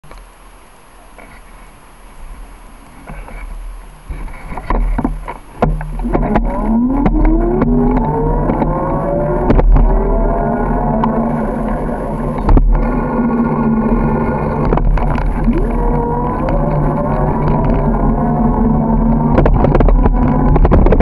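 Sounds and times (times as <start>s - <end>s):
wind rumbling on microphone: 1.2s - 21.0s
bike clicks and knocks: 4.1s - 10.0s
bike hum rising in pitch: 6.0s - 21.0s.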